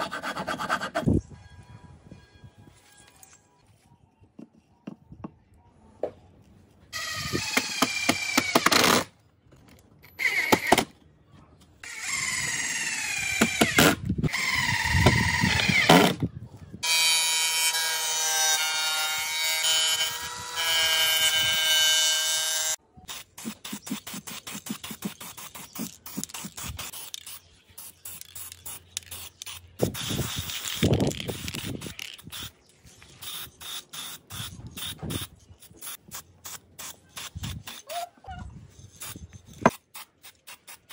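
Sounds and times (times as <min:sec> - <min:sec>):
spray can hissing: 0:23.1 - 0:32.5, 0:33.2 - 0:38.0.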